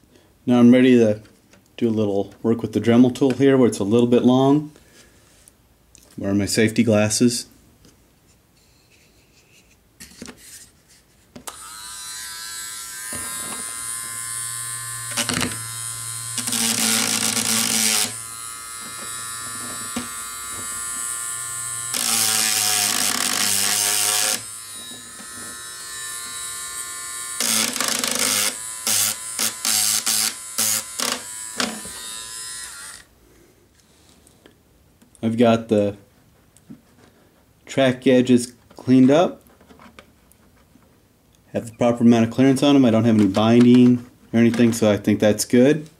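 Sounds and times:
rotary tool grinding metal: 11.5s - 33.1s.

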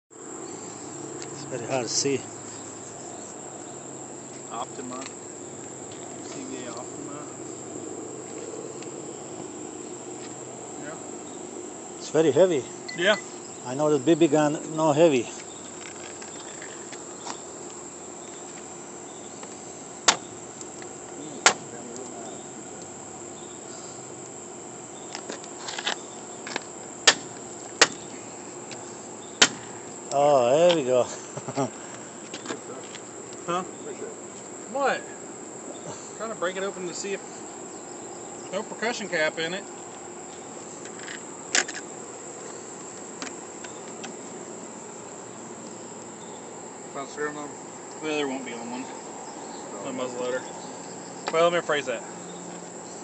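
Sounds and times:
insects chirring: 0.1s - 53.0s.

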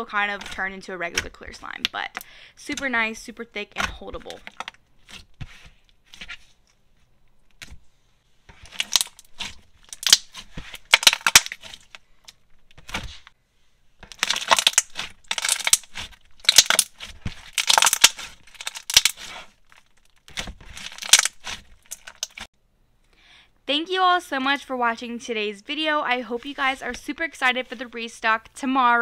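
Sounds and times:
slime squished by hand: 14.1s - 22.5s.

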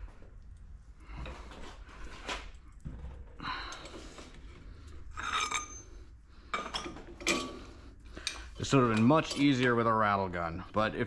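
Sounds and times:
steel tools clinking and scraping: 5.1s - 10.2s.

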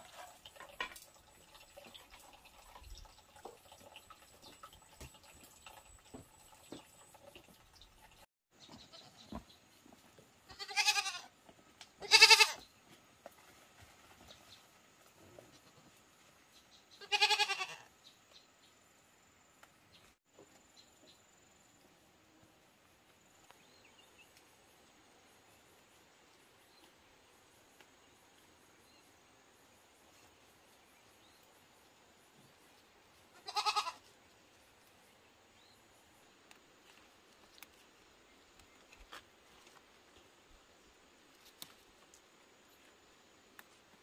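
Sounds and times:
faint rural background: 0.0s - 44.0s
small ticks: 36.4s - 37.9s.

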